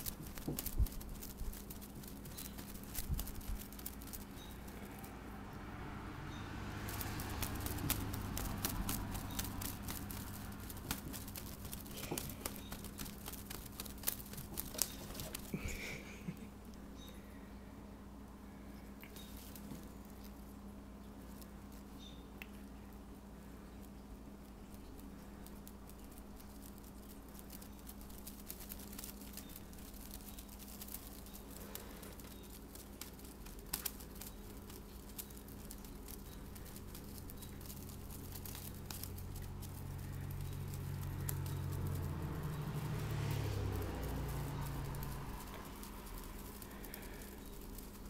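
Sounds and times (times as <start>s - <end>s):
steady low hum: 0.0s - 48.0s
light clicks and rustling: 6.9s - 17.2s.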